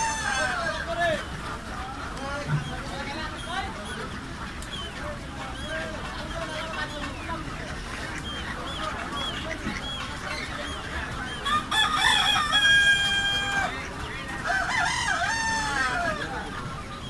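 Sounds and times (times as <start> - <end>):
rooster crowing: 0.0 - 0.7, 11.4 - 13.7, 14.4 - 16.2.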